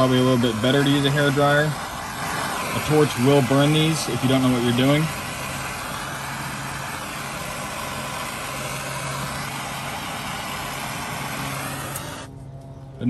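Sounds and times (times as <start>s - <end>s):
gas torch hissing: 0.0s - 12.4s
low steady hum: 5.1s - 13.0s.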